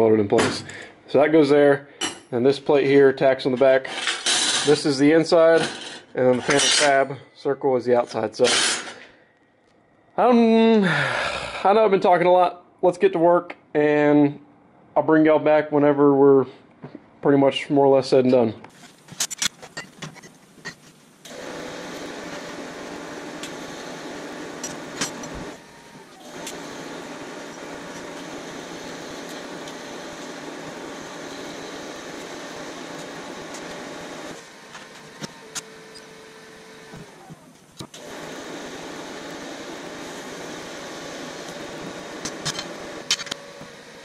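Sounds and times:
welding arc hissing and buzzing: 0:18.7 - 0:44.0.

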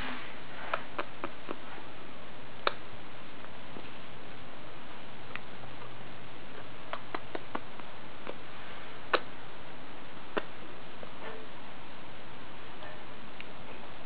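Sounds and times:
parrot beak and claw clicks: 0:06.9 - 0:08.4.

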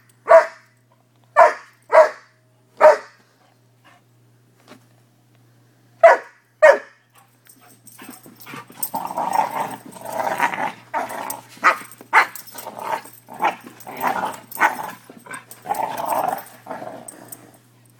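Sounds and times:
puppies play growling: 0:07.6 - 0:17.8.

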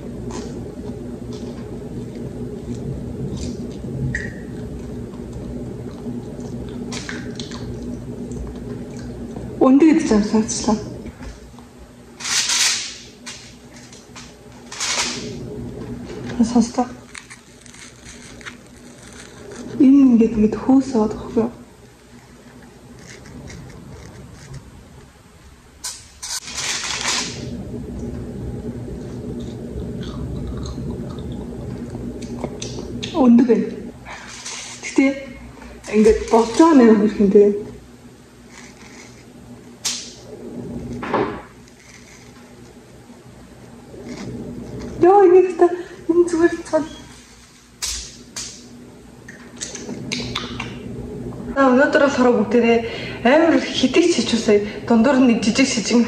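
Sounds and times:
low hum: 0:00.0 - 0:56.0
soft chewing: 0:04.5 - 0:09.4, 0:29.3 - 0:33.1
aluminium foil crinkling: 0:12.2 - 0:15.3, 0:16.4 - 0:19.8, 0:25.8 - 0:27.5, 0:34.2 - 0:35.0, 0:38.4 - 0:40.1, 0:41.6 - 0:42.8
lip smacks: 0:49.3 - 0:50.8.

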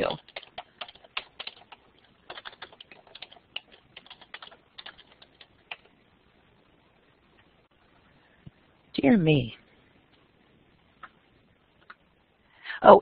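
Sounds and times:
typing on computer keyboard: 0:00.0 - 0:05.9.

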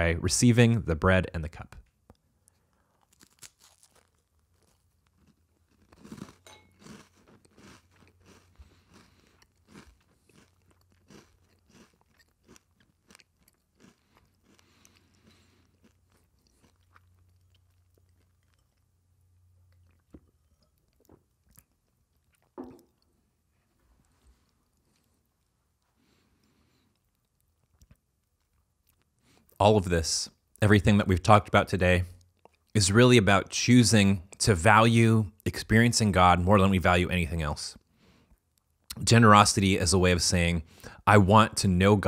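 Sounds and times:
crunching and chewing of cracker: 0:01.5 - 0:29.6, 0:32.2 - 0:32.8, 0:37.8 - 0:39.0.

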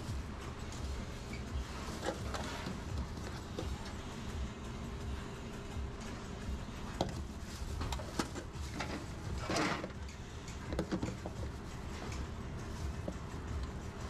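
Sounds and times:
low kitchen hum: 0:00.0 - 0:14.0
scraping rustle: 0:00.8 - 0:04.0, 0:07.2 - 0:13.3.

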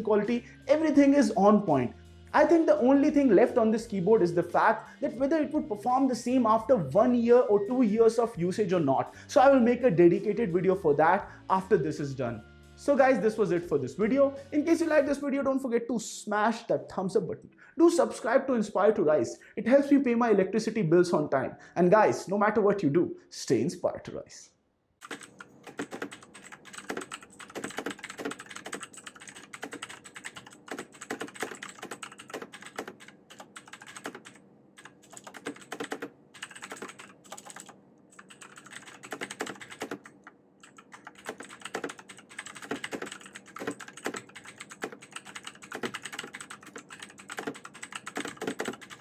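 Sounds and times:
mechanical keyboard typing: 0:25.0 - 0:49.0.

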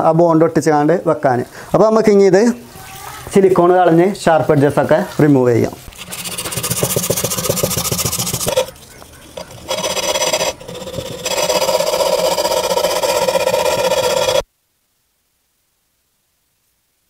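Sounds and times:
sandpaper rasping on glass: 0:05.9 - 0:14.4.

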